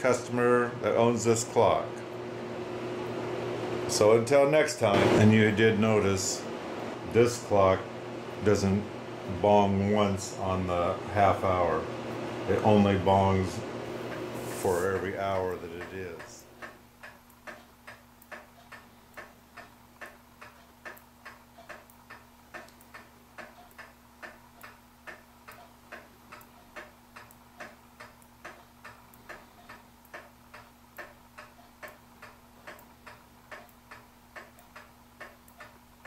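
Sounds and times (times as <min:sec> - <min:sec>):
pendulum clock ticking: 0:15.0 - 0:36.0.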